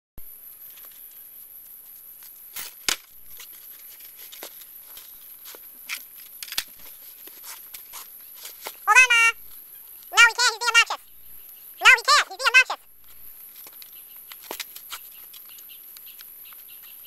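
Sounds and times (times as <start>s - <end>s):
loud pitched voice-like sound: 8.9s - 9.4s, 10.1s - 11.0s, 11.8s - 12.8s
bootlaces rustling and clicking: 13.5s - 17.0s.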